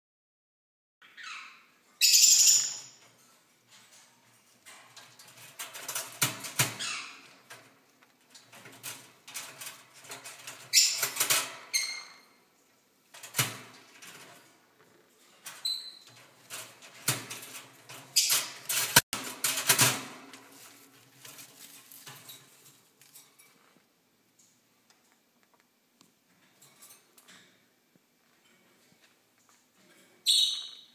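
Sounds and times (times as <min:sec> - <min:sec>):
bird rattling metal cage door: 0:03.1 - 0:12.3, 0:13.1 - 0:14.6, 0:15.3 - 0:20.5.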